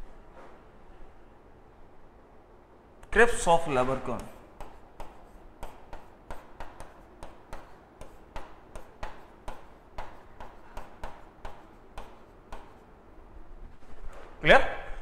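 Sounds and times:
marker scratching on whiteboard: 4.6 - 13.0.

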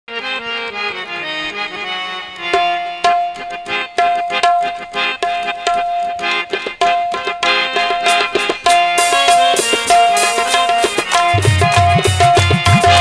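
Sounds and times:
harmonium melody: 0.1 - 13.0
tabla strokes: 2.5 - 13.0.

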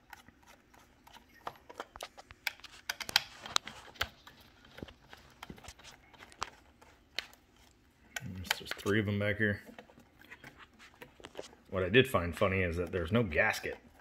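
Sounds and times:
screwdriver clicking and scraping: 0.0 - 9.0.

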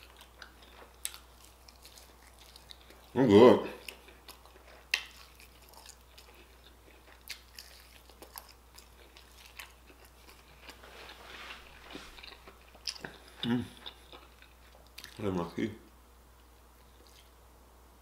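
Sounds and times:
person chewing crunchy food: 0.0 - 15.3, 16.7 - 17.4.

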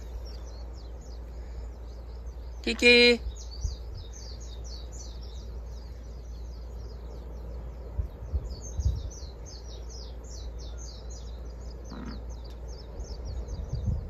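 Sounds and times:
birds chirping: 0.0 - 14.0
low rumble: 3.2 - 14.0.

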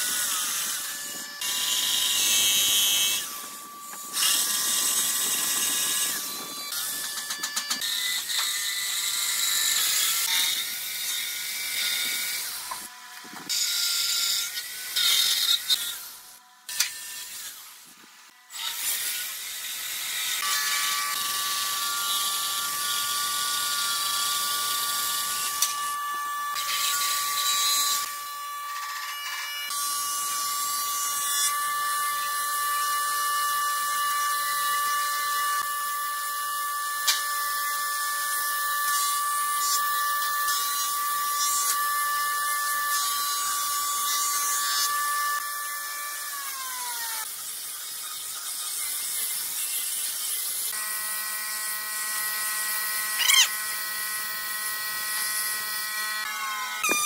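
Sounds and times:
angle grinder sanding wood: 0.0 - 17.9, 51.6 - 57.0.

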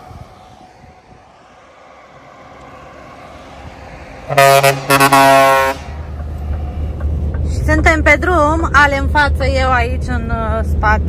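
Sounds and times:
truck horn blasts: 4.2 - 6.2.

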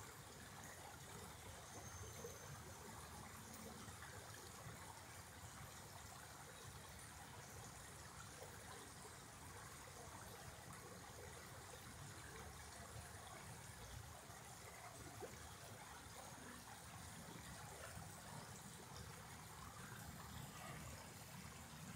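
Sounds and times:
creek running over rocks: 0.0 - 21.9.

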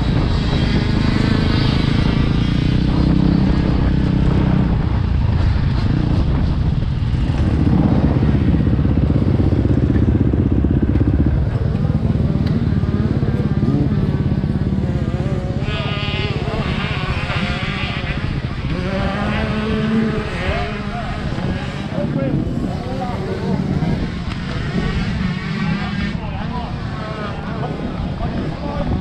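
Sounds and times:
motorcycle engine idling: 7.2 - 16.8.

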